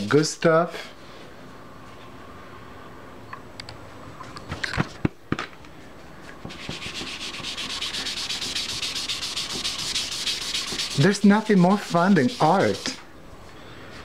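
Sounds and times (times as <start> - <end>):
cotton ball rubbing: 6.5 - 13.0.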